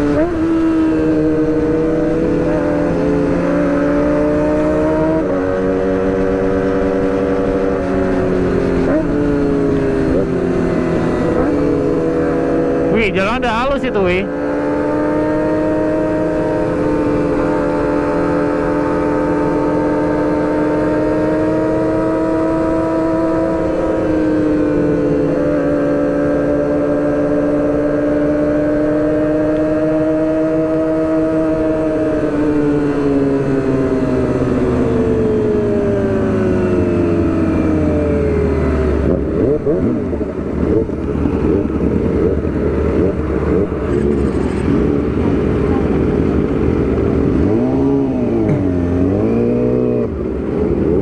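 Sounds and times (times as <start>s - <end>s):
motorcycle engine running: 0.0s - 12.9s, 31.6s - 51.0s.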